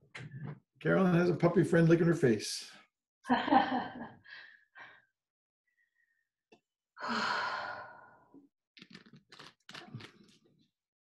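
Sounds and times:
woman's breathy sigh: 7.0 - 8.3.

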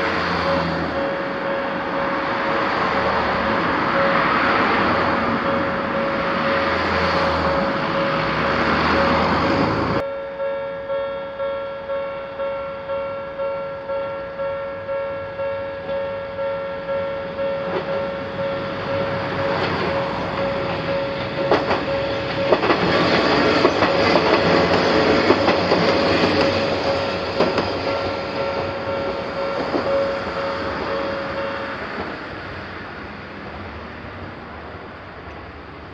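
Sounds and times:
car driving past: 0.0 - 10.0
level crossing warning bell: 0.0 - 32.9
diesel railcar rumbling: 0.0 - 35.9
train wheels clacking on rail joints: 17.6 - 32.3.

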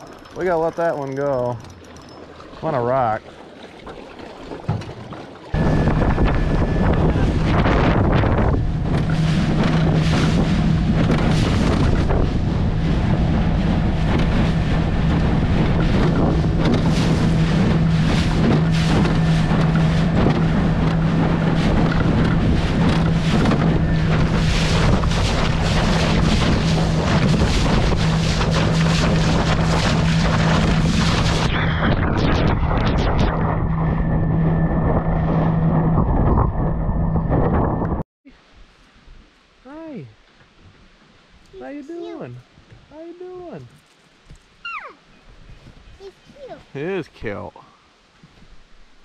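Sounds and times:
outboard motor running: 0.0 - 38.0
water splashing against hull: 0.0 - 39.2
wind buffeting microphone: 5.5 - 38.0.

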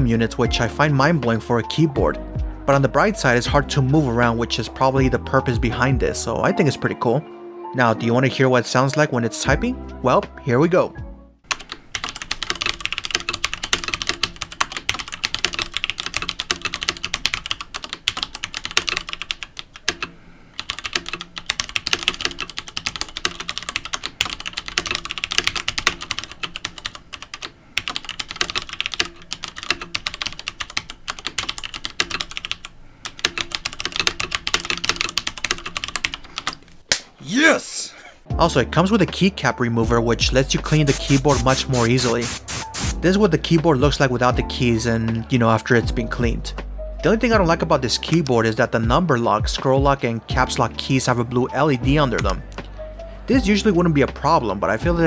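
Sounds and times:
fast mechanical keyboard typing: 11.5 - 36.6, 40.8 - 42.6.

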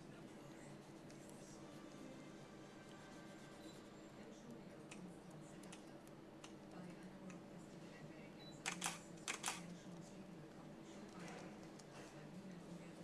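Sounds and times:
fingertips rubbing paper: 2.8 - 3.9.

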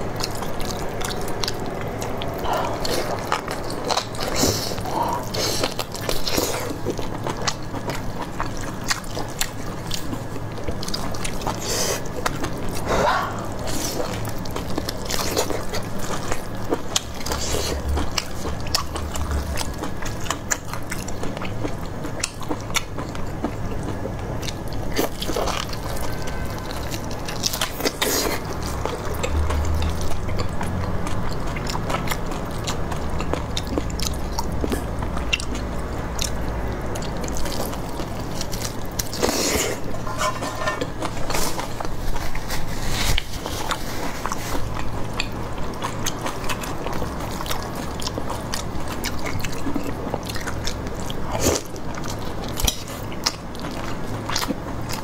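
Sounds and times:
close chewing and biting: 0.0 - 55.0.

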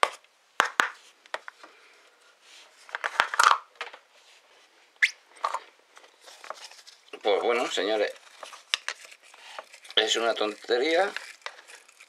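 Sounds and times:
plastic scraping and rustling: 5.3 - 12.0.

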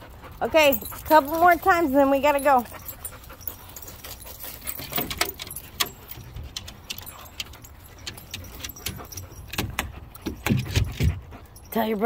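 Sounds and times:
collar jingling: 0.1 - 12.0
dog claws clicking on metal steps: 4.5 - 11.3.

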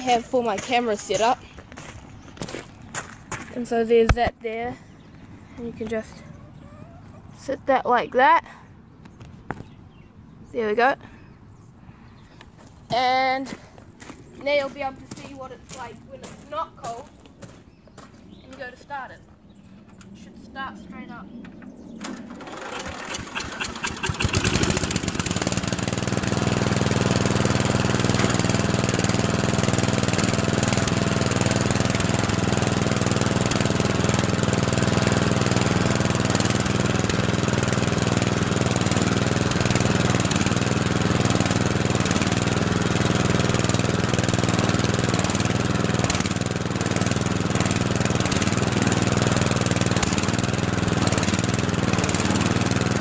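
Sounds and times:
lawn mower engine starting and running: 0.0 - 10.1, 21.5 - 53.0.

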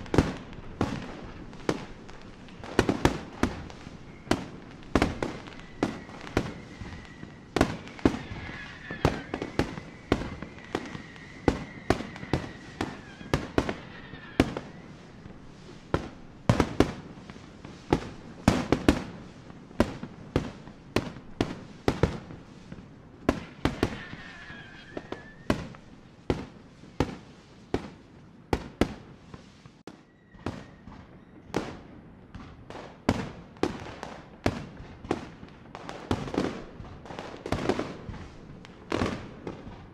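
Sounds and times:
high firework whistle: 0.0 - 19.2, 19.8 - 27.3, 29.9 - 31.8
fireworks bangs: 0.0 - 39.9.

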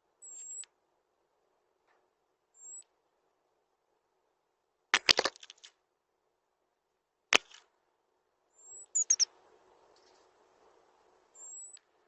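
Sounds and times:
high thin bird notes: 9.0 - 9.3.

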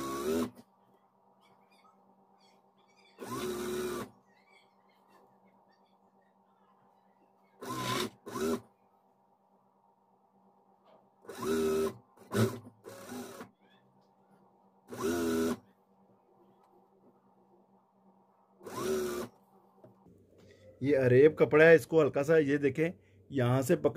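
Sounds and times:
sewing machine stitching: 0.0 - 0.6, 3.2 - 4.1, 7.6 - 8.7, 11.3 - 13.5, 14.9 - 15.6, 18.6 - 19.3
faint steady hum: 13.9 - 23.9.

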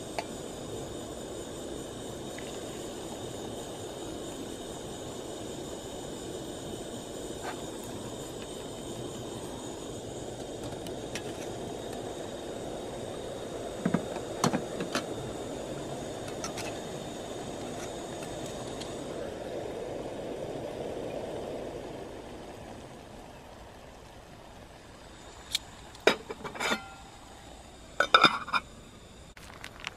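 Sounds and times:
gas stove burner rushing: 0.0 - 21.8, 25.2 - 29.0
metal clinks of pot: 26.1 - 27.1, 28.0 - 28.6.

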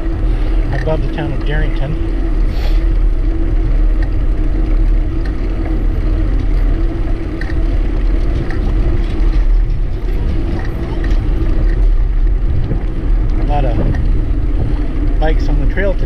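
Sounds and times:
steady hum: 0.0 - 16.0
wind and road rumble: 0.0 - 16.0
faint ticks: 3.8 - 14.1.

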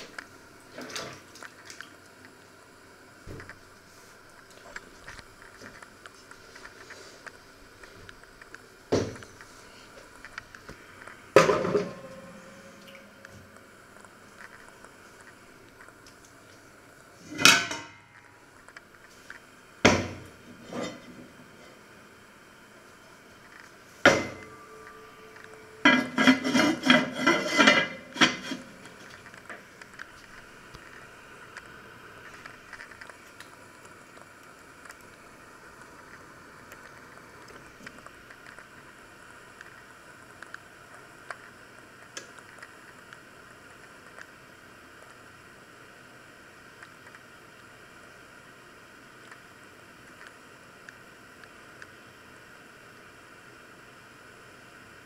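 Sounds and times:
electric oven hissing: 0.0 - 55.0
metal pot clanking on wire rack: 25.8 - 28.7.

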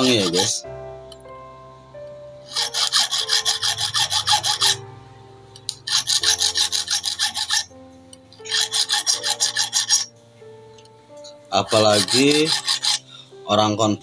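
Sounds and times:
metal file rasping on metal: 0.0 - 0.6, 2.5 - 4.8, 5.8 - 7.7, 8.4 - 10.1, 11.5 - 13.1.

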